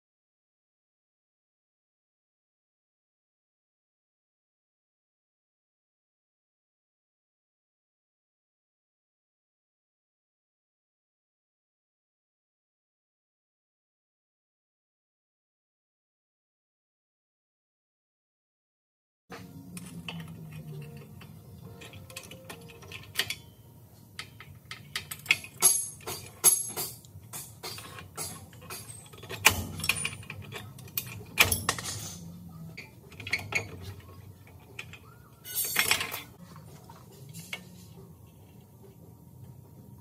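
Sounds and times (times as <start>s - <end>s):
metallic knocks and clanking: 24.2s - 37.8s.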